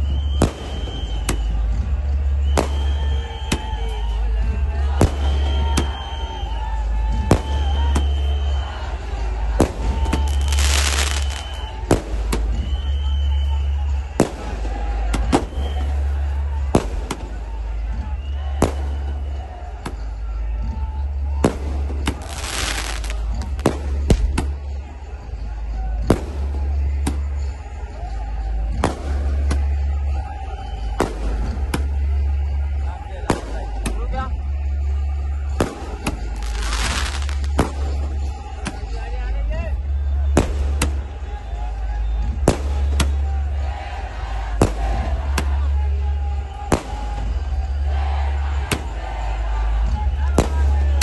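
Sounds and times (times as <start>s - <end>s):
large crowd noise: 0.0s - 51.0s
firecrackers banging: 9.5s - 12.8s, 21.4s - 24.8s, 35.5s - 39.0s, 40.3s - 41.2s.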